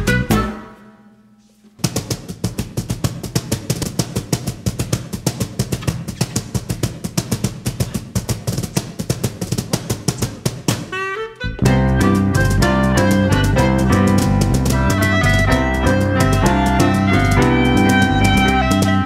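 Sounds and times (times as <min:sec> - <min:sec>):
full band playing: 0:00.0 - 0:00.8, 0:10.8 - 0:19.0
drum kit playing fast beat: 0:01.9 - 0:10.9, 0:11.5 - 0:19.0.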